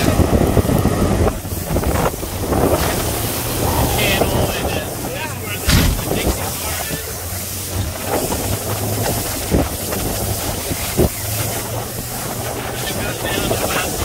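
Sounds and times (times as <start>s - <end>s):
hull thumping on waves: 0.0s - 14.0s
low boat engine hum: 0.0s - 14.0s
wind on microphone: 0.0s - 14.0s.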